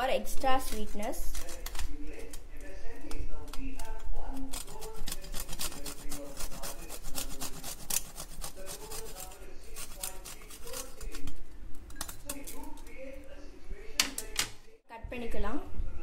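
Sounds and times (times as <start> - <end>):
nuts rasping on metal grater: 3.9 - 11.3.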